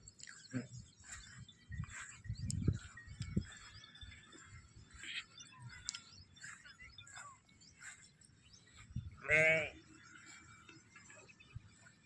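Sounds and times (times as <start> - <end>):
sheep bleating: 9.2 - 9.8.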